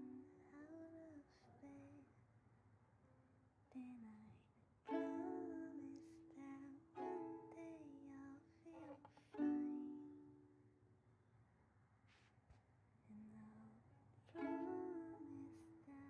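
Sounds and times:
ukulele strumming chords: 0:00.0 - 0:00.4, 0:04.9 - 0:10.5, 0:14.4 - 0:15.9
person singing softly: 0:00.0 - 0:02.2, 0:03.7 - 0:10.4, 0:13.0 - 0:16.0.

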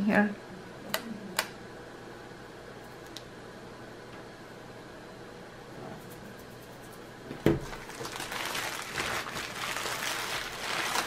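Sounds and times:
plastic mailer crinkling: 0:07.6 - 0:11.0.

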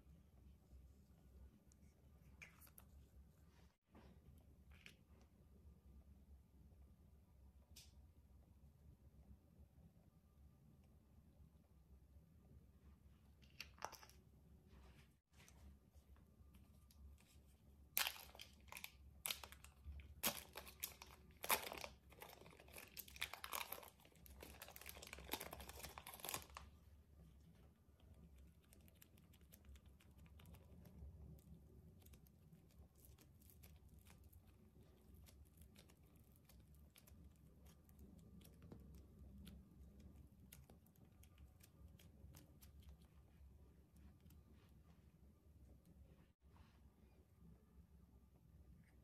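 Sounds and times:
plastic bag crinkling: 0:17.9 - 0:26.7.

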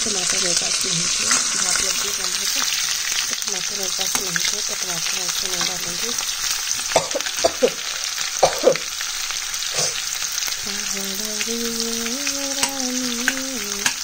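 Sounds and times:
onions sizzling in hot oil: 0:00.0 - 0:14.0.

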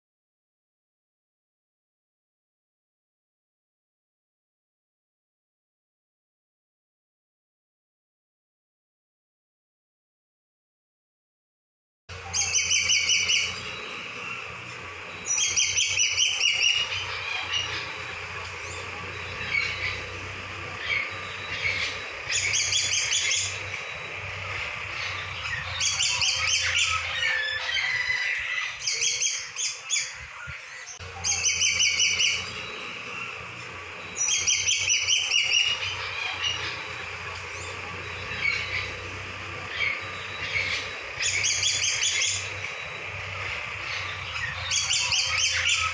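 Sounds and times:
small birds chirping: 0:12.1 - 0:45.9.

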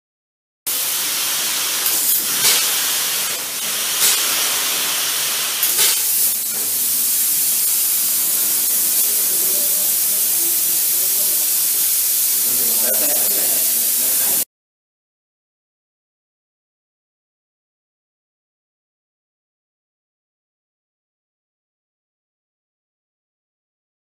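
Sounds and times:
spray gun hissing: 0:00.7 - 0:14.5.

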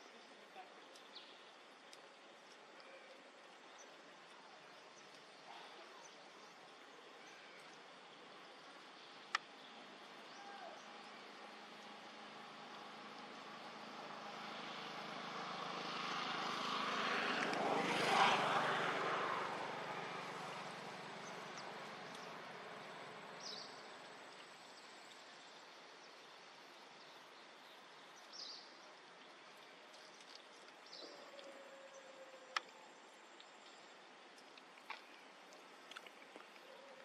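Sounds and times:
distant engine passing by: 0:10.7 - 0:24.3.

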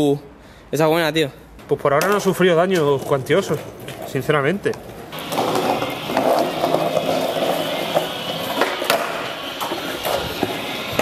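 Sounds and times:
skateboard rolling over paving: 0:05.1 - 0:11.0
skateboard sharp clacks: 0:05.2 - 0:11.0.

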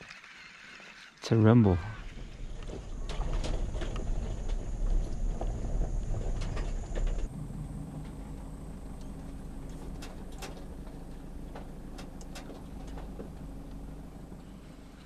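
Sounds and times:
tyres rumbling on gravel: 0:00.0 - 0:15.0
low steady hum: 0:01.6 - 0:15.0.

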